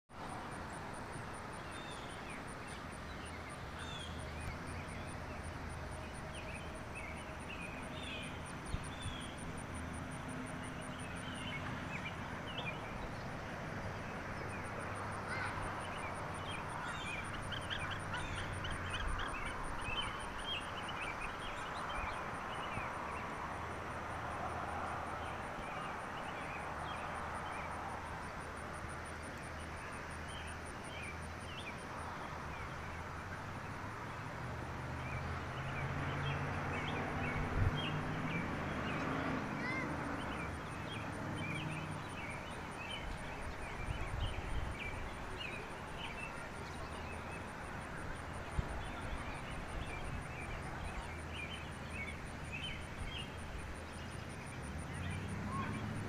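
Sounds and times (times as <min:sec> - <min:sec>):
birds chirping: 0:15.3 - 0:23.3, 0:35.2 - 0:56.0.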